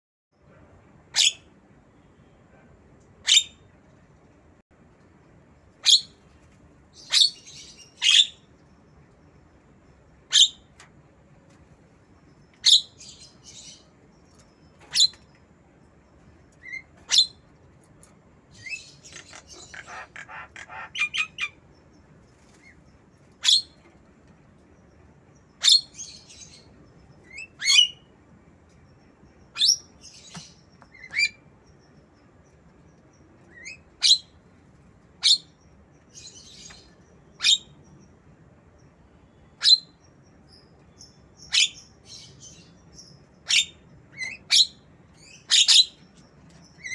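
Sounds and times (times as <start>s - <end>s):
bird chattering: 18.6s - 21.6s.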